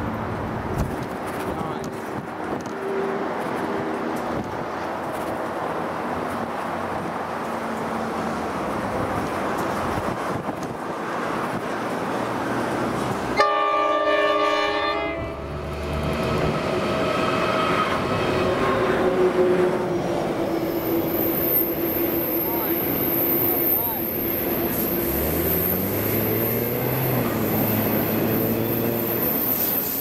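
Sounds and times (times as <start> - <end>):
diesel locomotive engines: 0.0 - 30.0
train wagons rolling: 0.4 - 30.0
train horn blast: 13.4 - 15.5, 17.0 - 24.0.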